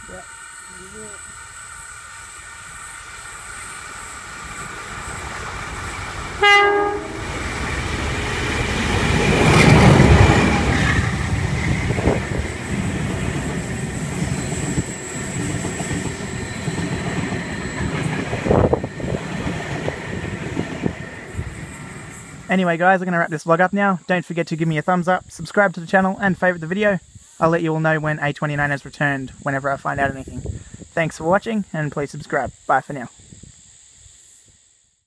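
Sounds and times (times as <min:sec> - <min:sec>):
locomotive passing: 0:00.0 - 0:22.8
train horn blast: 0:06.4 - 0:07.4
train wheels clickety-clack: 0:07.4 - 0:22.2.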